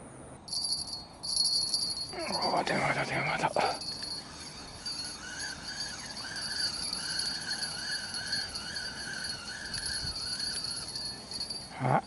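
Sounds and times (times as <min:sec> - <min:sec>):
fishing reel whirring: 0:00.5 - 0:11.8.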